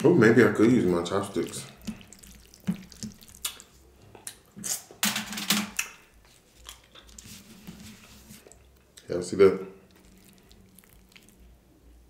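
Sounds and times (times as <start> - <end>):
wet chewing mouth sounds: 1.3 - 5.0, 9.8 - 11.5.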